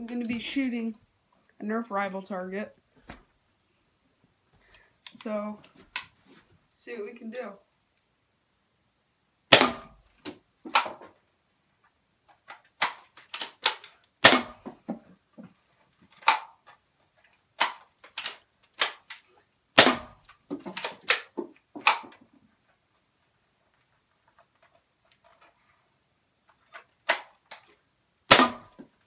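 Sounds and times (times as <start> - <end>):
plastic blaster clicks: 12.8 - 14.5, 17.6 - 19.2, 20.7 - 22.2
toy blaster firing pops: 28.3 - 28.7.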